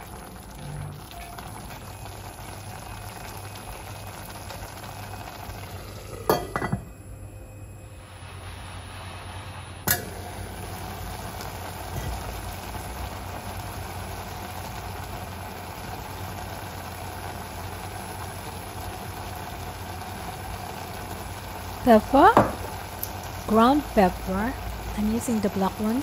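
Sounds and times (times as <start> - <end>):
noodles sizzling in a pan: 0.0 - 6.7, 7.9 - 26.0
pan lid clinking: 6.3 - 6.9.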